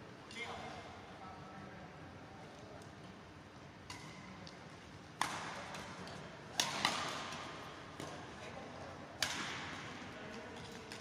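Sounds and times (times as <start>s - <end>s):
rackets hitting shuttlecock: 3.8s - 4.6s, 5.2s - 8.4s, 9.2s - 11.0s.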